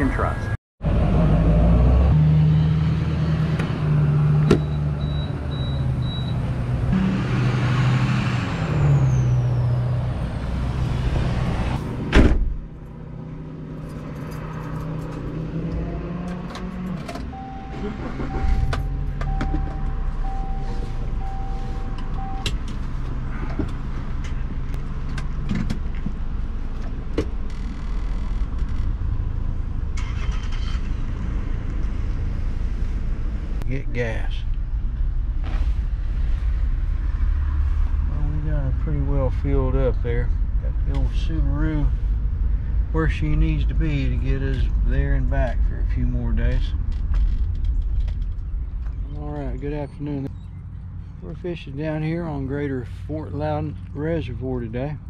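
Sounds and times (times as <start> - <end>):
low car hum: 0.0 - 55.0
car door slamming: 12.1 - 12.6.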